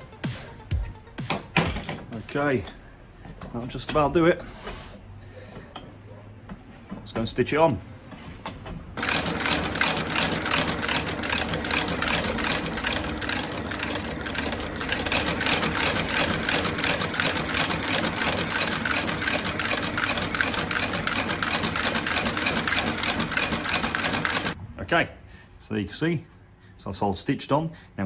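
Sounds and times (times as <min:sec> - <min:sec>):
stitching machine clattering: 0:09.0 - 0:24.6.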